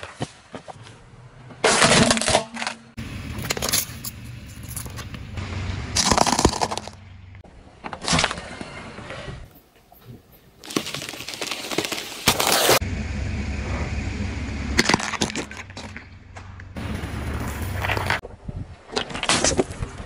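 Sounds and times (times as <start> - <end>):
objects cracking under car tyre: 1.6 - 8.5, 10.6 - 12.8, 14.8 - 18.2
low rumble: 3.0 - 7.4, 12.8 - 18.2.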